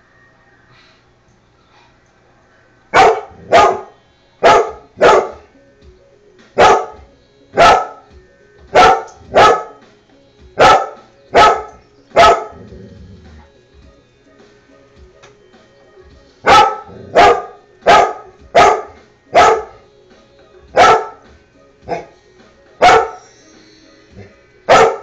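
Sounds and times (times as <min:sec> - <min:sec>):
dog barking: 0:02.9 - 0:05.5, 0:06.6 - 0:08.0, 0:08.7 - 0:09.8, 0:10.6 - 0:12.7, 0:16.4 - 0:19.8, 0:20.7 - 0:21.2, 0:21.9 - 0:22.2, 0:22.8 - 0:23.2, 0:24.7 - 0:25.0.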